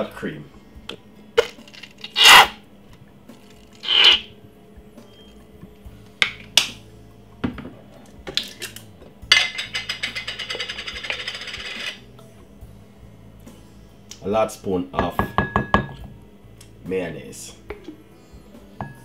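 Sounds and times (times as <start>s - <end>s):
bottle sputtering hiss: 3.8s - 4.3s.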